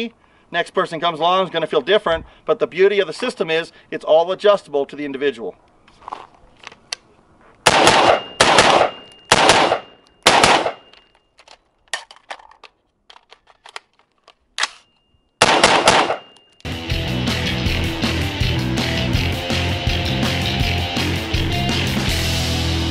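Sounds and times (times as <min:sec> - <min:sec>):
rifle shots: 0:07.6 - 0:10.9, 0:15.4 - 0:16.4
music: 0:16.7 - 0:22.9.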